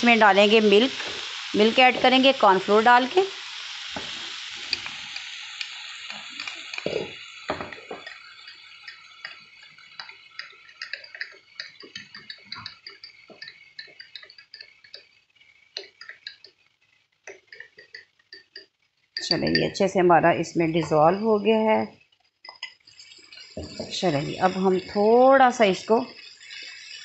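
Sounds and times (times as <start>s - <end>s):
pan sizzling: 0.0s - 27.0s
metal spoon clinking against glass: 7.8s - 15.1s, 17.4s - 19.8s.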